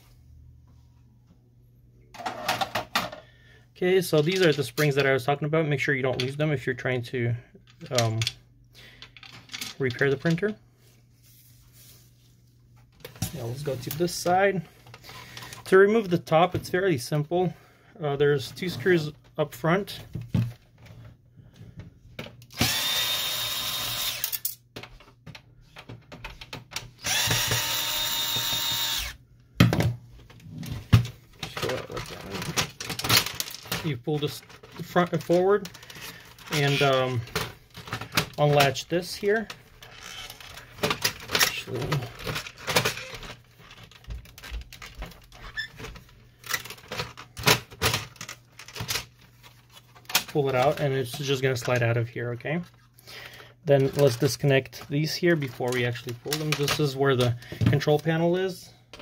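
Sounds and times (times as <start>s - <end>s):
power screwdriver whining: 22.5s - 24.4s, 27.0s - 29.2s.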